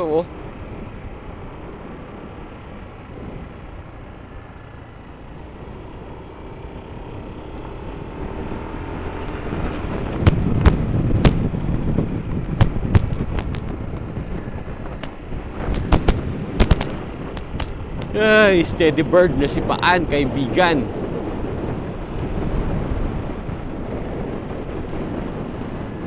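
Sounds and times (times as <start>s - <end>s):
wind noise: 0.0s - 3.9s, 6.6s - 26.0s
bicycle road noise: 0.0s - 26.0s
sharp clicks and knocks: 10.0s - 18.2s.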